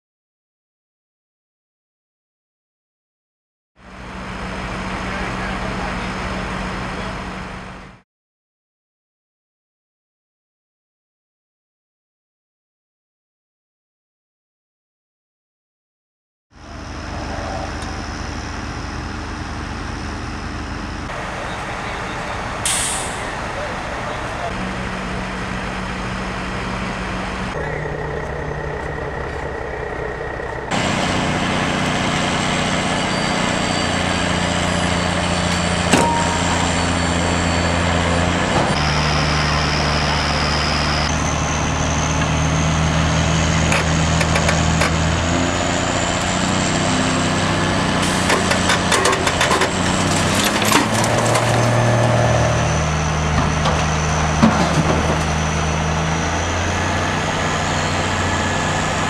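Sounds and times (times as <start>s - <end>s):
diesel engine under load: 3.8s - 8.0s, 16.6s - 59.0s.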